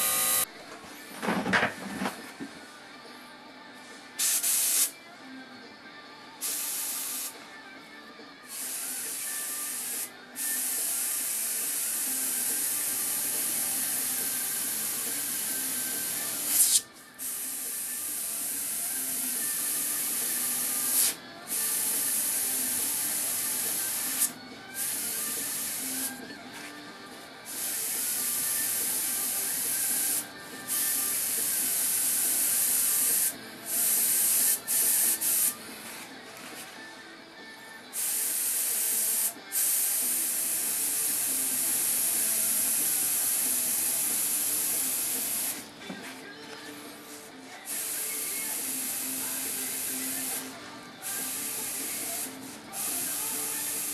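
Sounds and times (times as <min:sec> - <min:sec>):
airbrush spraying hiss: 0:04.2 - 0:04.9, 0:06.4 - 0:07.3, 0:08.5 - 0:26.2, 0:27.5 - 0:35.6, 0:37.9 - 0:46.2, 0:47.6 - 0:53.9.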